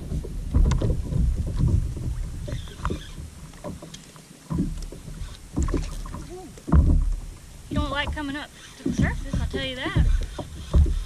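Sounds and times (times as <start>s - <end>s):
wind buffeting microphone: 0.0s - 3.8s, 4.5s - 11.0s
water lapping against hull: 0.0s - 11.0s
small knocks and clicks: 0.1s - 11.0s.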